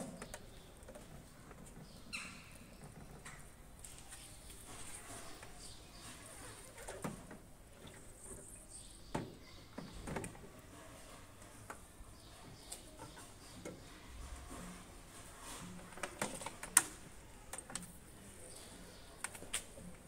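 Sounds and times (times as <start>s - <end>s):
plastic knocks and clicks: 9.1s - 10.5s.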